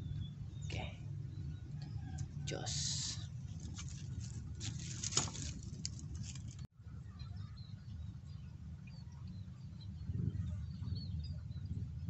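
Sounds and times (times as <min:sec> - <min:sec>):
wind rumble on microphone: 0:00.0 - 0:12.0
microphone handling rustling and clicks: 0:03.5 - 0:06.7.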